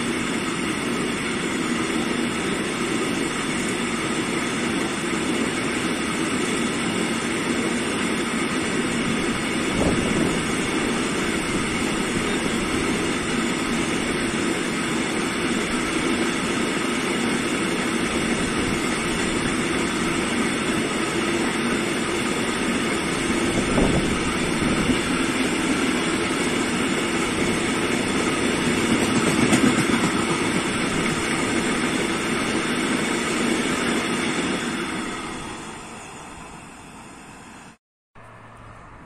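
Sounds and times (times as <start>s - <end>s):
freight train rumbling past: 0.0s - 39.0s.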